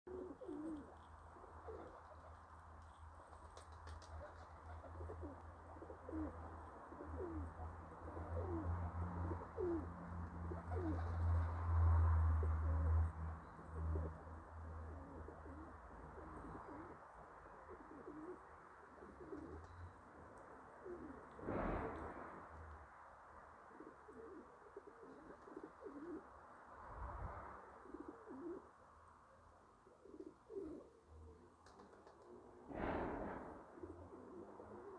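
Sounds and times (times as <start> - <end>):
pigeons cooing: 0.0 - 2.4, 3.8 - 11.6, 12.3 - 19.8, 20.7 - 21.4, 23.7 - 26.3, 27.8 - 28.7, 29.8 - 32.6, 33.7 - 34.9.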